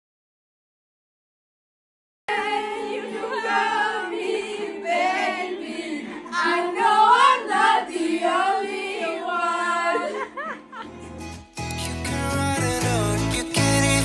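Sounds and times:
girls singing together: 0:02.3 - 0:10.8.

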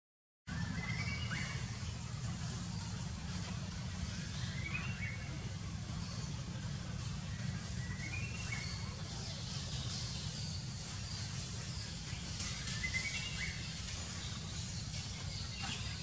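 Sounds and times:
bird chirps: 0:00.5 - 0:16.0
steady low rumble: 0:00.5 - 0:16.0.

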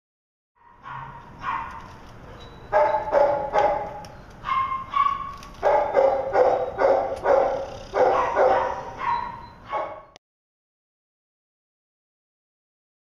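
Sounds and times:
dog barking: 0:00.6 - 0:02.0, 0:02.7 - 0:10.2.

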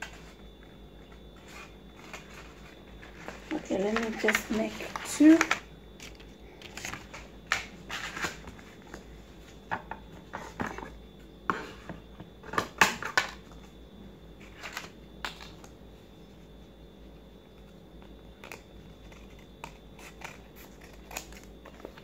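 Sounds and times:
paper rustling: 0:01.4 - 0:09.0
scissors snipping paper: 0:18.4 - 0:22.0.

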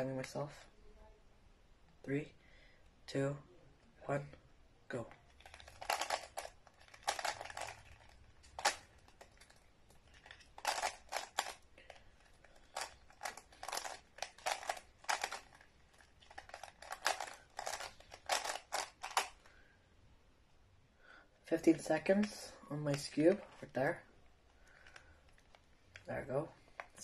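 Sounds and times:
puzzle cube clicking turns: 0:05.1 - 0:19.6, 0:21.6 - 0:27.0.

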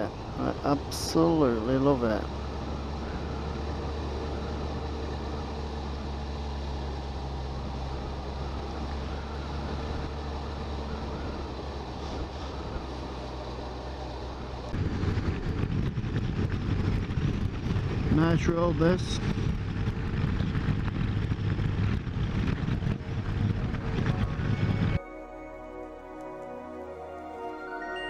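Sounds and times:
motorcycle engine humming: 0:00.0 - 0:28.0
road noise: 0:00.0 - 0:28.0
wind rumble on microphone: 0:14.2 - 0:25.0.

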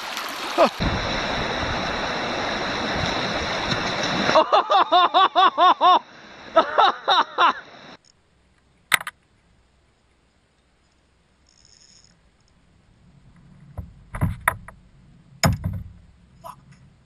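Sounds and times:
rushing river water: 0:00.0 - 0:08.0
person laughing: 0:00.6 - 0:00.8, 0:04.3 - 0:07.7.

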